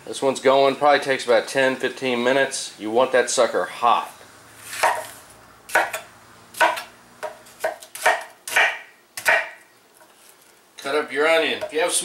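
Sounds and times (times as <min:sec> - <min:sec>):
knife chopping on wooden board: 0:04.8 - 0:05.1, 0:05.7 - 0:09.6.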